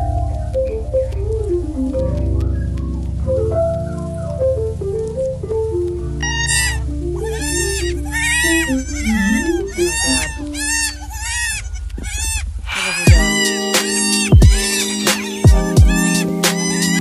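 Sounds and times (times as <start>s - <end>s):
slow background music: 0.0s - 10.6s, 13.2s - 17.0s
goat kids bleating: 6.2s - 17.0s.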